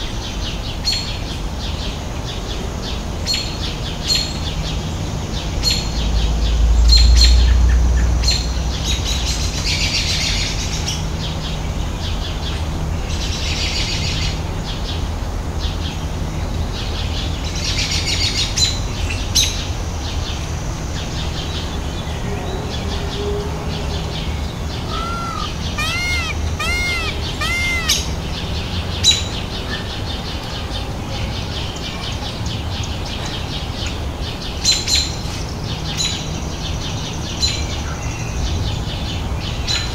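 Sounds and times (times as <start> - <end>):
birds chirping: 24.2 - 28.8.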